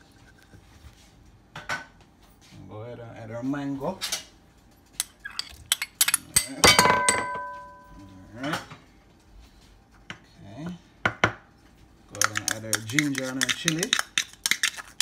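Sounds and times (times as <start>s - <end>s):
ringing clatter: 6.7s - 8.0s.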